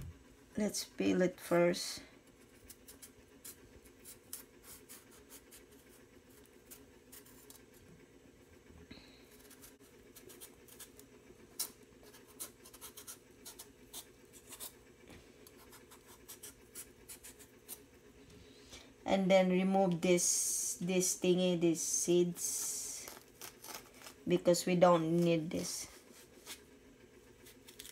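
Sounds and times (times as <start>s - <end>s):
blade scraping gourd rind: 22.6s - 24.3s, 27.4s - 27.9s.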